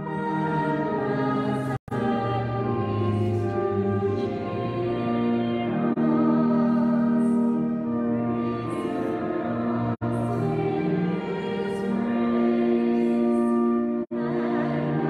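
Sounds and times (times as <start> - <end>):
hymn singing: 0.0 - 15.0.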